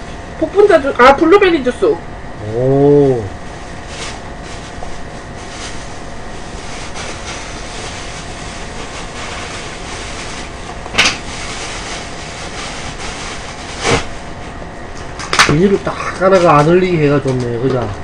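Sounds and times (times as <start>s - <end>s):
plastic bag handling: 3.5s - 14.5s.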